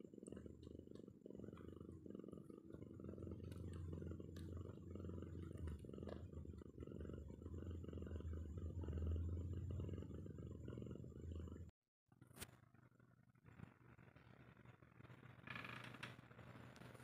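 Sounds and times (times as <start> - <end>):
cat purring: 0.0 - 11.7.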